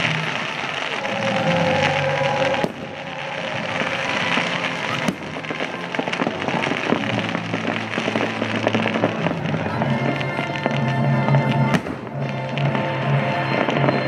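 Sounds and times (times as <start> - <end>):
fireworks bursting and crackling: 0.0 - 14.0
soundtrack music: 0.0 - 14.0.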